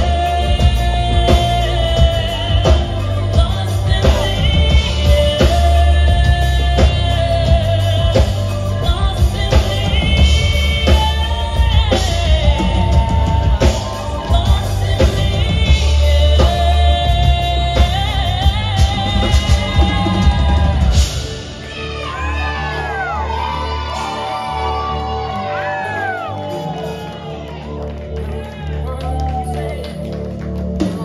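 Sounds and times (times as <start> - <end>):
woman singing into a microphone: 0.0 - 23.0
steady drum beat: 0.0 - 26.4
heavy bass: 0.0 - 31.0.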